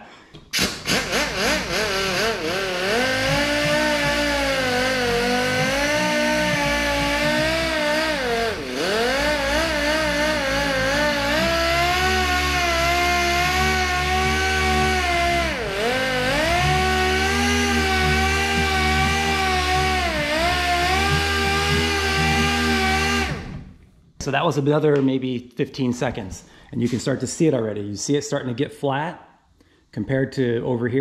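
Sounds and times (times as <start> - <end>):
orbital sander whining: 0.6 - 23.8.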